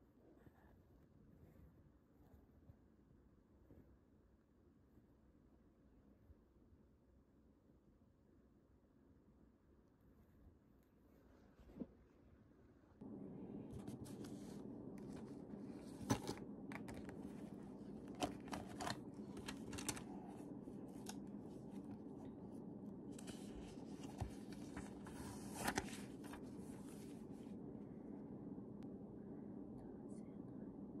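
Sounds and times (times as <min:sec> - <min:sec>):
low room hum: 0:00.0 - 0:31.0
paper rustling and tapping: 0:13.8 - 0:21.9, 0:23.2 - 0:27.0.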